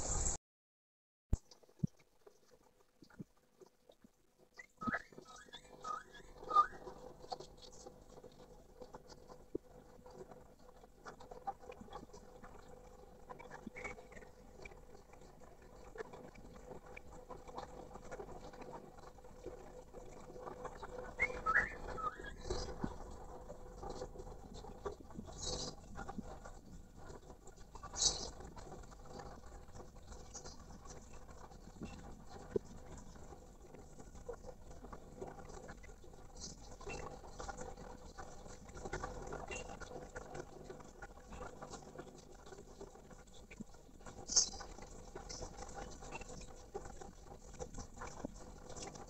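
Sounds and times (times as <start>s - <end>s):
bird call: 4.8s - 6.8s, 21.2s - 22.7s
bird pattering and scratching in cage: 24.8s - 33.1s, 43.6s - 49.0s.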